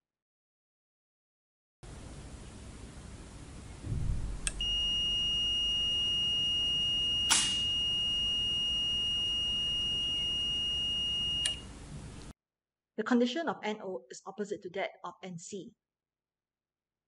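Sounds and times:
low thump: 0:03.8 - 0:04.6
relay click: 0:04.4 - 0:04.7, 0:07.2 - 0:07.8, 0:11.4 - 0:12.3
multimeter continuity beep: 0:04.5 - 0:11.7.

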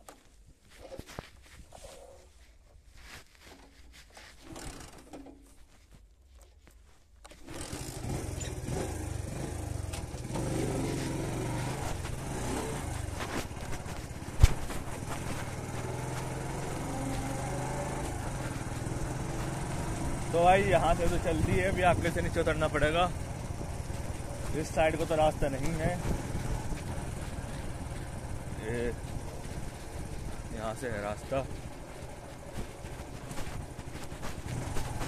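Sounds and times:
motorcycle engine running: 0:07.4 - 0:35.0.

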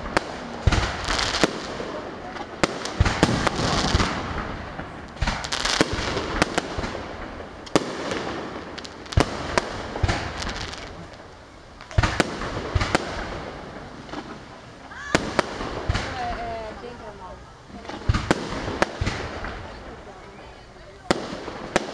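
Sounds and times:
firework shells bursting: 0:00.0 - 0:16.4.

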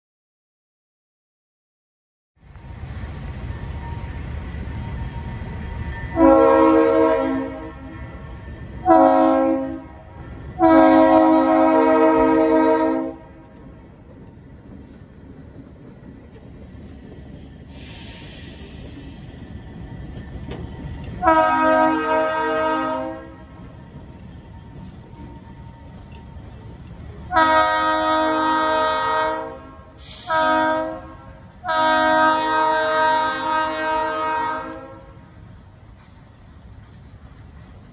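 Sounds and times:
locomotive air horn blasts: 0:06.1 - 0:08.0, 0:08.8 - 0:13.3, 0:21.2 - 0:23.4, 0:27.3 - 0:35.2.

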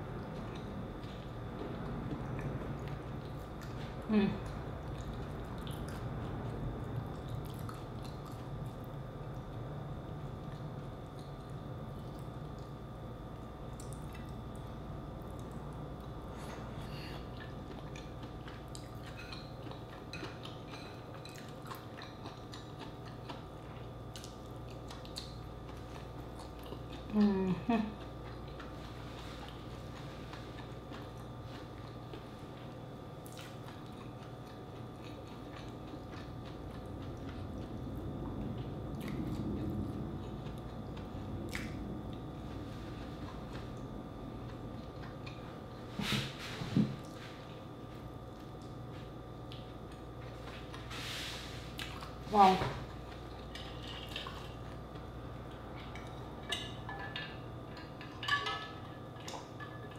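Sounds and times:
low steady hum: 0:00.0 - 0:59.9
chewing: 0:00.3 - 0:47.6, 0:48.3 - 0:58.6
person humming: 0:27.1 - 0:28.0.

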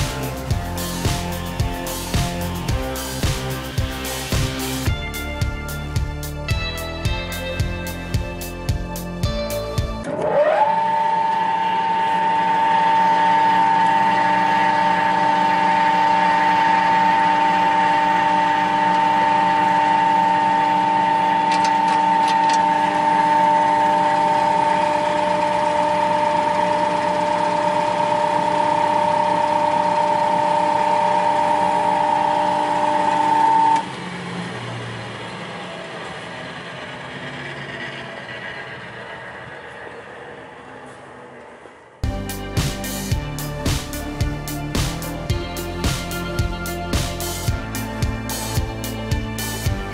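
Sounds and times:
belt sander motor whine: 0:09.4 - 0:49.9.

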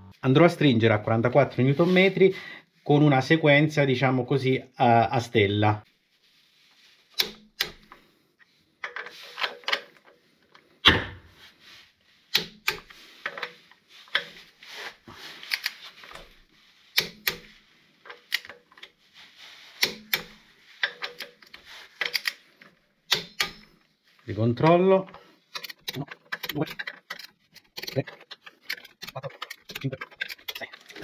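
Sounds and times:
torque wrench clicking: 0:23.1 - 0:23.7.

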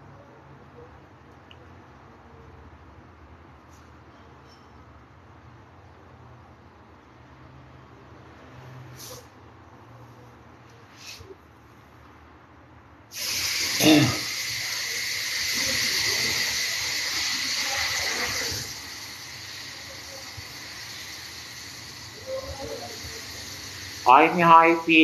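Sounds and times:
steady hiss: 0:13.1 - 0:25.0.

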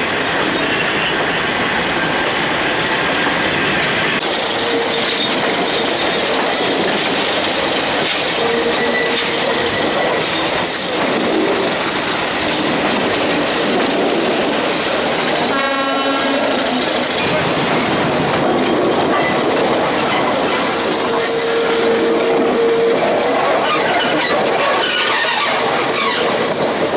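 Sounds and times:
train wheels rumbling on rails: 0:00.0 - 0:26.9
train horn: 0:08.4 - 0:09.4, 0:15.5 - 0:17.0, 0:20.8 - 0:23.4
wheel squeals: 0:08.4 - 0:11.1.

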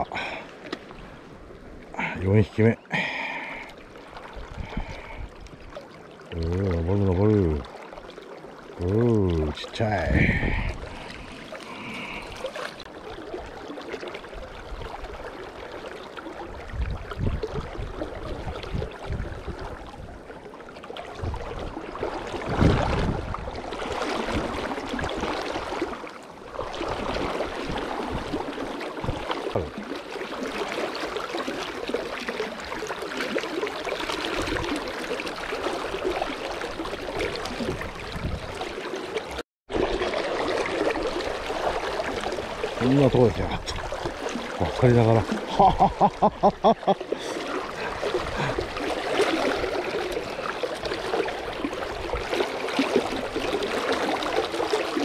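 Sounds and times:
river water rushing: 0:00.0 - 0:06.3, 0:21.6 - 0:55.0.

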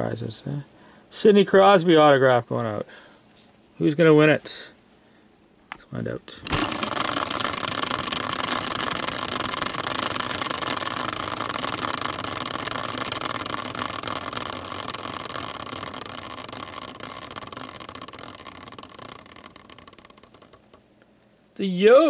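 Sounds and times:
spinning caster wheel whirring: 0:06.4 - 0:20.9.

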